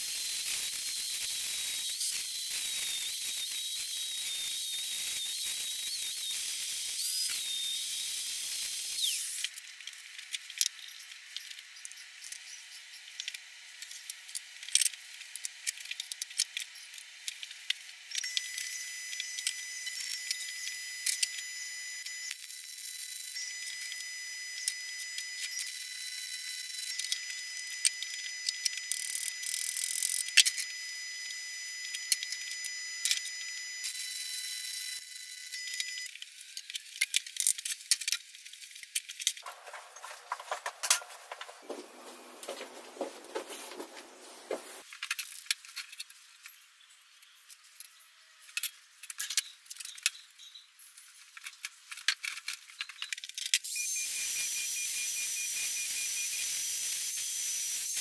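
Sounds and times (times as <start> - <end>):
angle grinder cutting steel: 0.0 - 9.5
arc welding crackling: 0.0 - 9.6, 39.4 - 44.9
metal parts clinking: 38.8 - 41.6.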